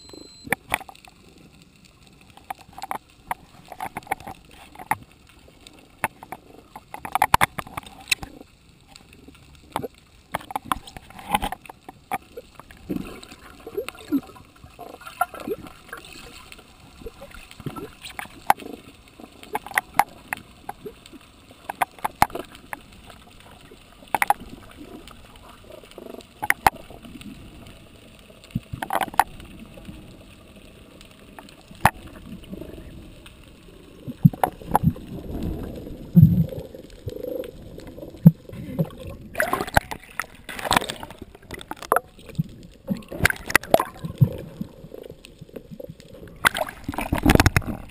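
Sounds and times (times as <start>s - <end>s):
sharp underwater clicks: 0.0s - 47.9s
underwater low rumble: 0.0s - 47.9s
bubbling gurgles: 5.9s - 47.9s
splashy water noise: 38.2s - 44.6s, 46.3s - 47.9s.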